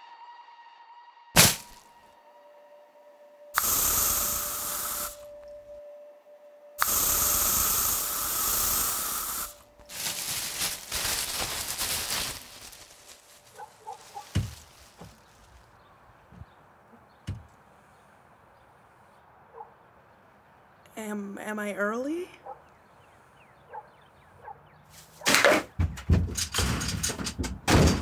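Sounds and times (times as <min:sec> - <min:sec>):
pump sprayer hissing: 0:03.6 - 0:05.4, 0:06.8 - 0:10.6.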